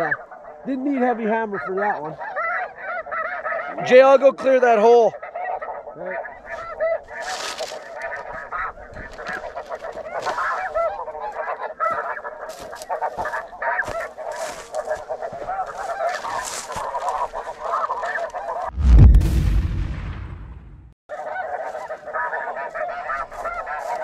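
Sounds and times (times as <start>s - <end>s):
geese yelping: 0.0s - 18.7s, 21.1s - 24.0s
loud low thump: 18.7s - 21.0s.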